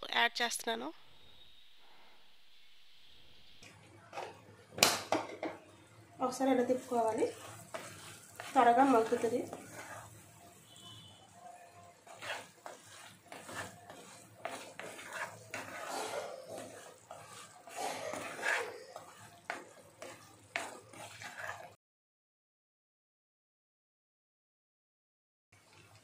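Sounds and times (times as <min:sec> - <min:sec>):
spatula scraping a pan: 0:06.2 - 0:21.8.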